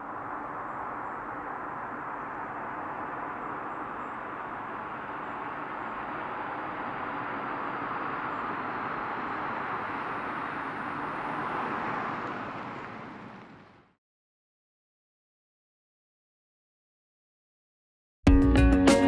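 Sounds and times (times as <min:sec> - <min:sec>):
van tyres hissing on road: 0:00.0 - 0:13.8.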